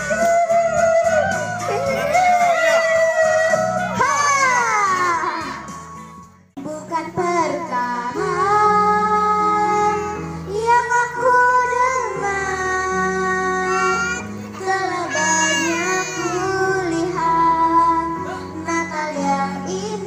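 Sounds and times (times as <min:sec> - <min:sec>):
backing music over loudspeakers: 0:00.0 - 0:20.0
girl singing into microphone: 0:06.6 - 0:20.0.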